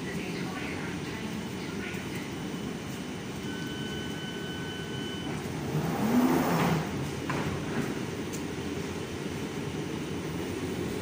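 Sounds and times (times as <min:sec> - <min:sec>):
low rumble of train: 0:00.0 - 0:11.0
electronic door warning tone: 0:03.4 - 0:05.5
train doors sliding shut: 0:03.7 - 0:08.5.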